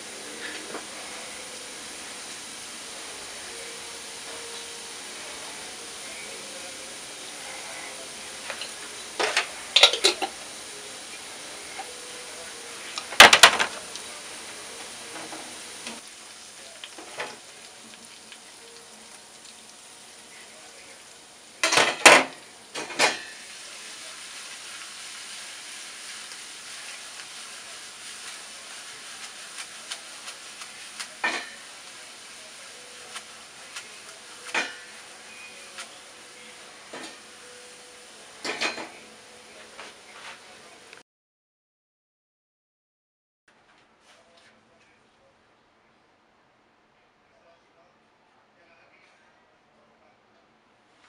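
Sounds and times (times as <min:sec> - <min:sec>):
garlic sizzling in oil: 0:00.0 - 0:41.0
utensils clattering against pan: 0:08.4 - 0:10.4, 0:13.0 - 0:14.0, 0:21.6 - 0:23.4, 0:31.0 - 0:31.7, 0:33.8 - 0:35.0, 0:36.9 - 0:37.3, 0:38.4 - 0:39.0.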